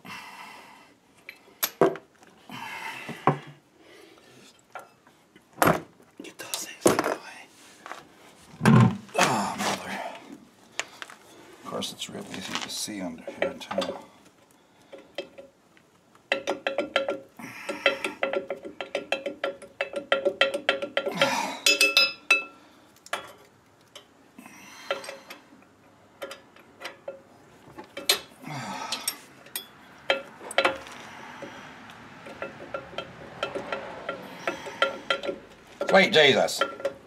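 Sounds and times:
metallic clicking and clinking: 16.2s - 24.1s, 32.2s - 37.0s.

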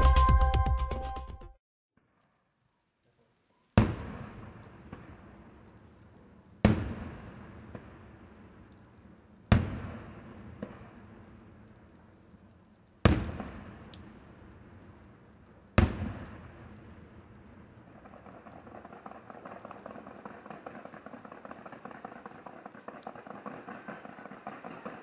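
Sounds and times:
faint firework crackles: 2.0s - 25.0s
fireworks bangs with echo: 3.8s - 11.7s, 13.0s - 25.0s.

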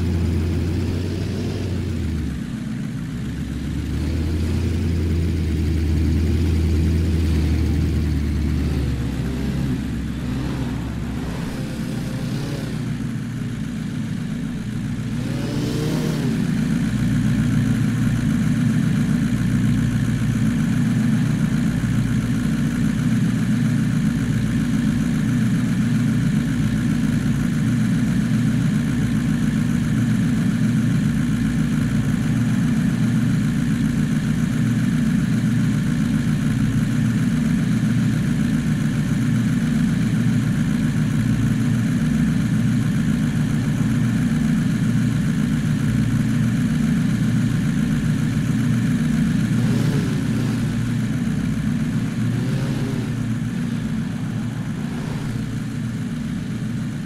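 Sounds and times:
vehicle engine running: 0.0s - 57.0s.

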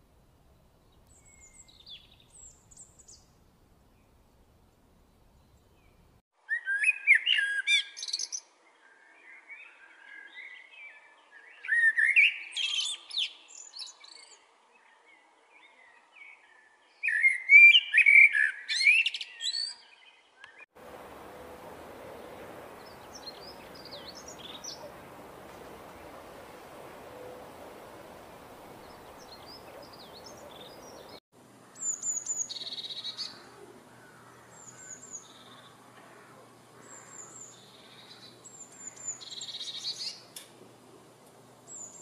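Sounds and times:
blackbird singing: 1.1s - 3.3s, 5.4s - 14.4s, 15.6s - 36.2s, 36.8s - 40.3s
small bird faint high warble: 20.8s - 31.2s
steady hiss: 20.8s - 31.2s.

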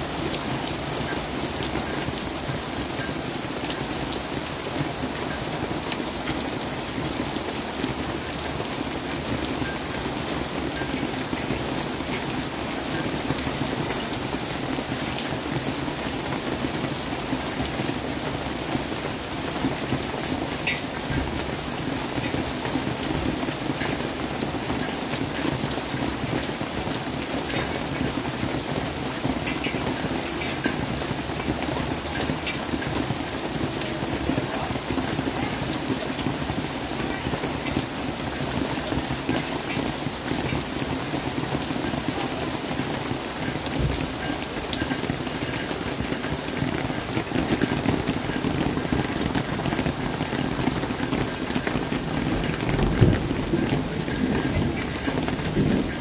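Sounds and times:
steady rain: 0.0s - 56.0s
raindrops ticking: 0.1s - 56.0s
low thunder rumbling: 51.8s - 56.0s.

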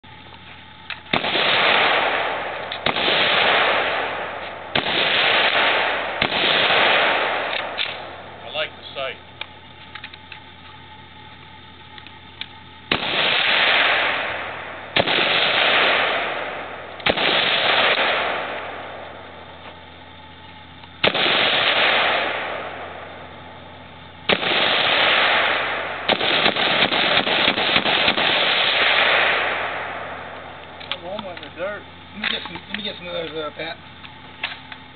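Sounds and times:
rapid rifle fire: 0.9s - 8.7s, 12.8s - 19.5s, 21.0s - 31.2s
rolling gunshot echo: 0.9s - 8.8s, 12.4s - 19.6s, 21.0s - 31.5s
rifle shots: 0.9s - 19.8s, 21.0s - 31.6s.

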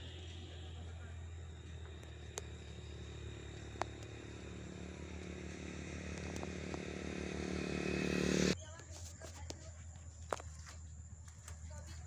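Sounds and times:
low hum: 0.0s - 8.6s
vehicle engine running: 0.0s - 12.0s.

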